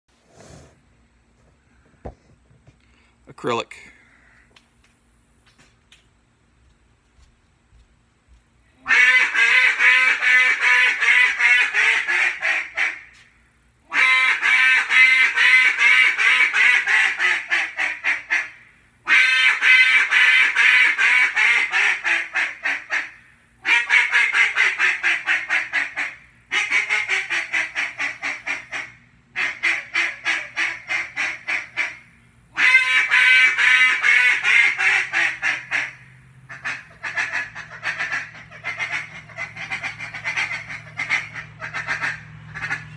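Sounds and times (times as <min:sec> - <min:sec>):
duck call quacks: 0:08.8 - 0:13.2, 0:13.9 - 0:32.0, 0:32.6 - 0:42.9.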